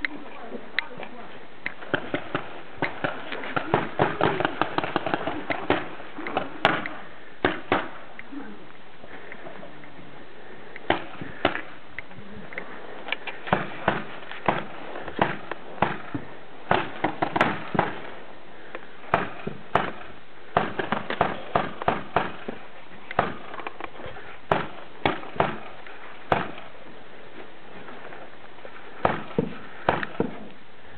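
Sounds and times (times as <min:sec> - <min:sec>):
background hiss: 0:00.0 - 0:30.9
paintball markers firing: 0:01.7 - 0:08.0, 0:13.2 - 0:18.1, 0:19.1 - 0:23.9, 0:24.5 - 0:26.7, 0:29.0 - 0:30.5.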